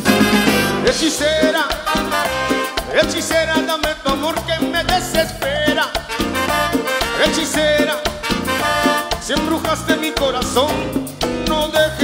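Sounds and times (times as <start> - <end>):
horns: 0.0 - 3.8, 5.9 - 9.9
cumbia band playing: 0.0 - 12.0
electric bass: 0.0 - 12.0
percussion dance beat: 0.0 - 12.0.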